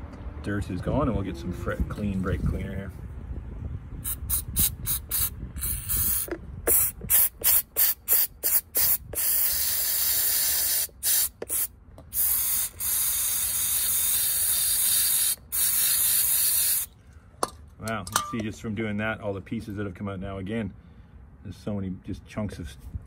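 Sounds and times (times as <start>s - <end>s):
aerosol spray hissing: 4.1s - 16.9s.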